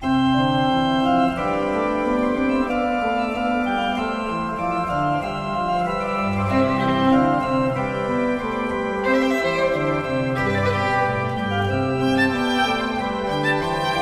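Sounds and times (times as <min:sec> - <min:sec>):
organ music: 0:00.0 - 0:14.0.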